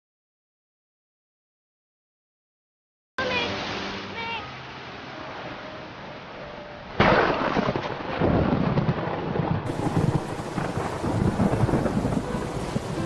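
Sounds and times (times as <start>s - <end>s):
steady rain: 3.2s - 13.0s
rolling thunder: 7.0s - 13.0s
thunderclap: 7.0s - 13.0s.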